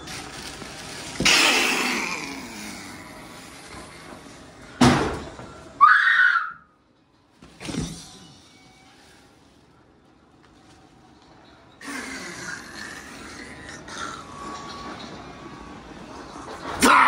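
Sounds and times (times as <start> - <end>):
short high-pitched cry: 5.8 - 6.6.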